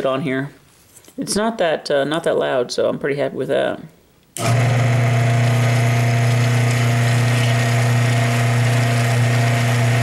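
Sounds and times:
cooling fan rushing: 4.4s - 10.0s
pump motor humming: 4.4s - 10.0s.

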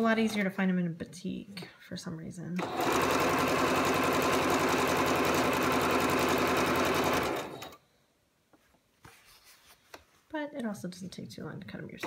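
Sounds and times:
electric sewing machine stitching: 2.6s - 7.8s.

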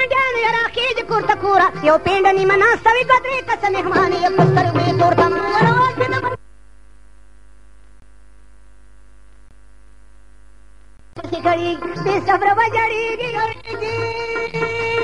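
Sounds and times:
person singing with music: 0.0s - 6.4s, 11.2s - 15.0s
electrical mains hum: 6.4s - 11.2s.

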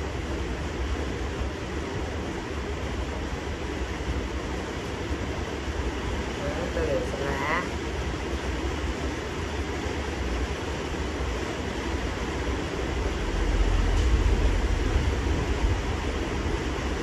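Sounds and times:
low rumble: 12.3s - 17.0s.

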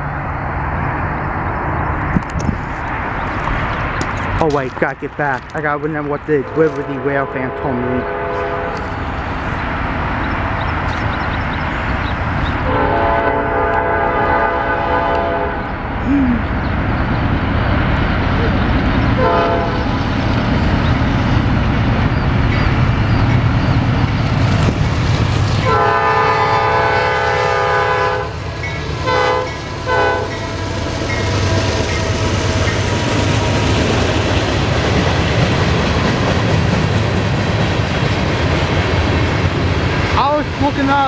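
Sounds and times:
freight cars rolling on rails: 0.0s - 14.0s, 15.1s - 41.0s
diesel locomotive engine running: 0.0s - 41.0s
train air horn blasts: 6.4s - 8.8s, 12.6s - 15.6s, 19.2s - 19.9s, 25.6s - 28.4s, 29.0s - 30.8s.

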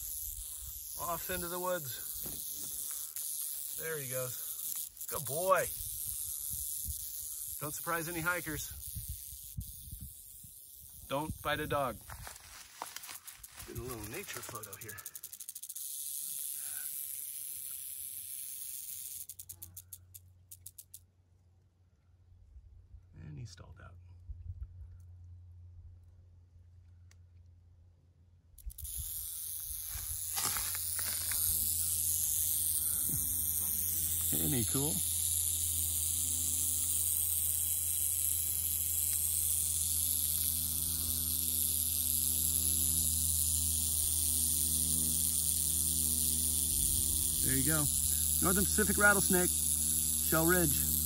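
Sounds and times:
rattlesnake tail rattling: 0.0s - 21.1s, 28.6s - 51.0s.

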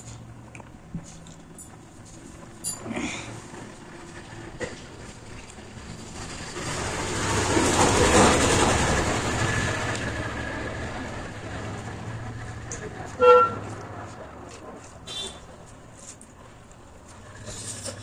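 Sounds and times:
vehicle passing: 3.1s - 18.0s
short horn toot: 13.2s - 13.6s, 15.0s - 15.5s.

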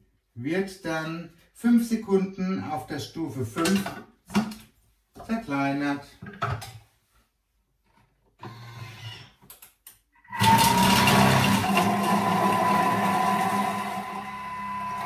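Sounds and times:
food processor blade motor whining: 10.3s - 15.0s.

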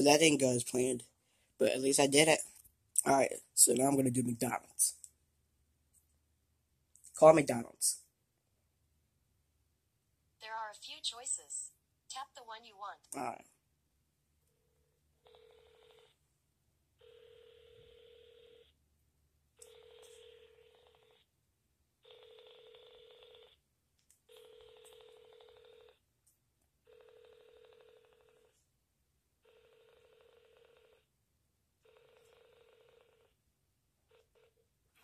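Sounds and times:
phone ringback tone: 15.2s - 16.2s, 17.0s - 18.7s, 19.6s - 21.2s, 22.0s - 23.6s, 24.3s - 26.0s, 26.9s - 28.5s, 29.4s - 31.0s, 31.8s - 33.3s.

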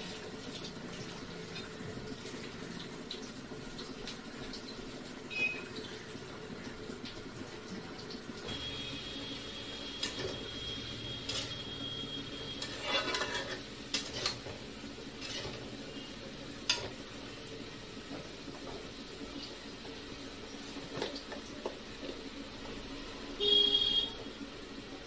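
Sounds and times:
greens sizzling: 0.0s - 25.0s
metal spatula scraping a pan: 9.9s - 17.0s.

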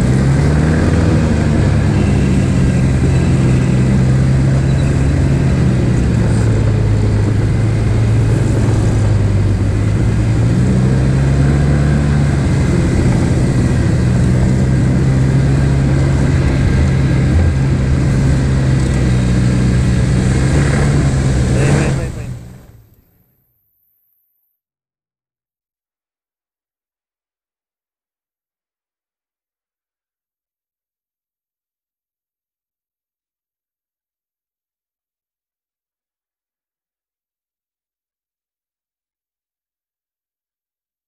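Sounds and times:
snowmobile engine running: 0.0s - 23.2s.

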